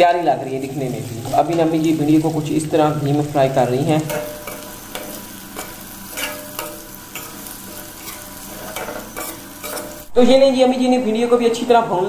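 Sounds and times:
food sizzling in oil: 0.0s - 10.3s
skimmer scraping pan: 4.1s - 10.1s.

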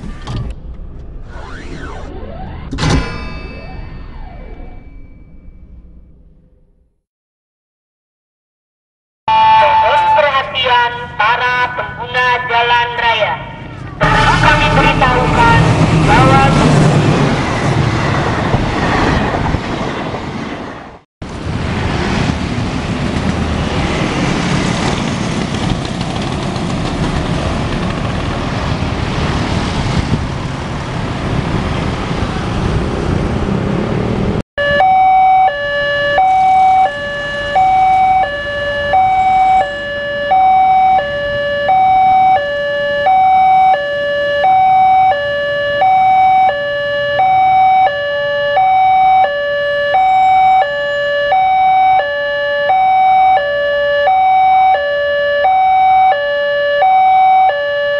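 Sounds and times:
broad rumbling noise: 0.0s - 7.0s, 13.4s - 34.4s
level crossing electronic alarm: 9.3s - 16.6s, 34.6s - 57.9s.

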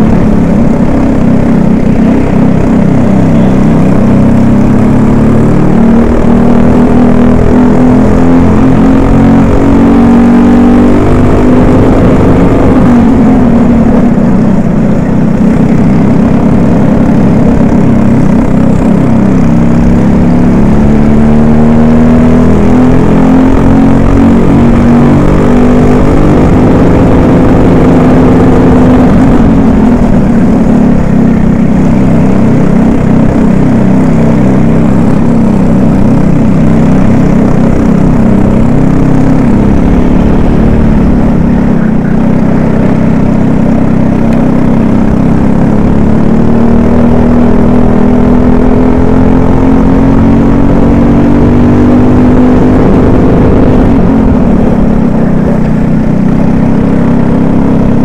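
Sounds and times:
kart engine revving: 0.0s - 58.0s
second kart engine: 0.0s - 58.0s.

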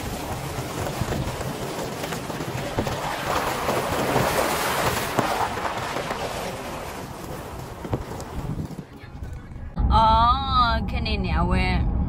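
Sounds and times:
tyres splashing through creek: 0.0s - 9.0s
tyres crunching over gravel: 0.0s - 9.4s
wind on microphone: 0.0s - 9.8s.

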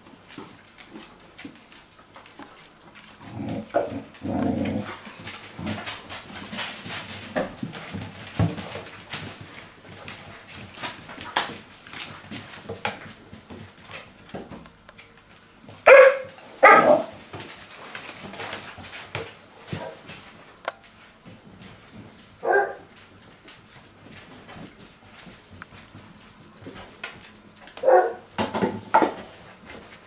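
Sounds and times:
puppy barking: 15.9s - 17.1s, 22.4s - 22.9s, 27.8s - 28.3s.

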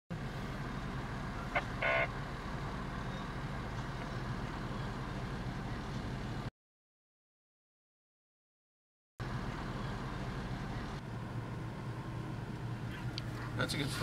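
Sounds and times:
diesel engine idling: 0.1s - 6.5s, 9.2s - 14.0s
short high beeps: 1.5s - 2.1s.

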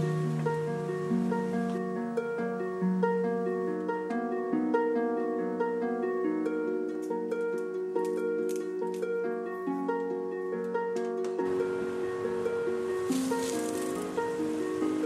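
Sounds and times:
plucked string instrument music: 0.0s - 15.0s.

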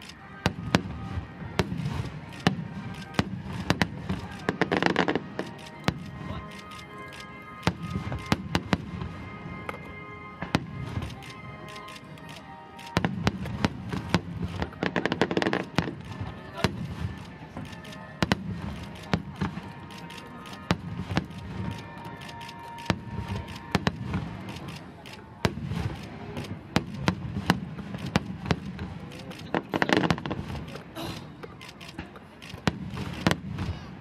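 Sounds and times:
music: 0.0s - 26.5s
fireworks shells bursting: 0.0s - 33.9s.

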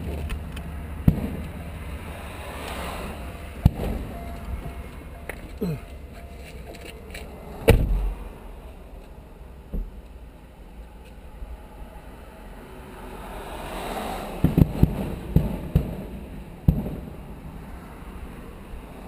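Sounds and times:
fireworks bursting: 14.4s - 17.2s.

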